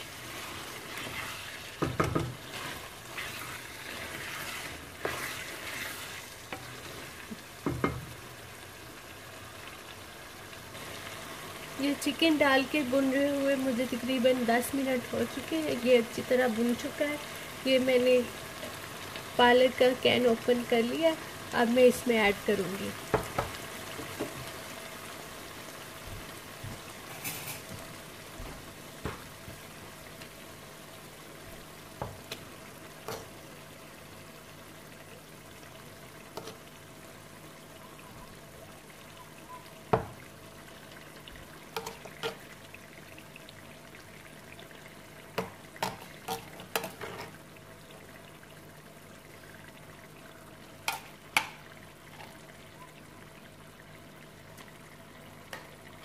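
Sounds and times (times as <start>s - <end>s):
food sizzling in a pan: 0.0s - 56.0s
wooden spoon tapping and scraping pan: 1.8s - 2.5s, 7.6s - 8.2s, 23.1s - 24.4s, 29.0s - 29.6s, 32.0s - 32.4s, 36.4s - 36.6s, 39.9s - 40.2s, 41.8s - 42.4s, 45.4s - 47.4s.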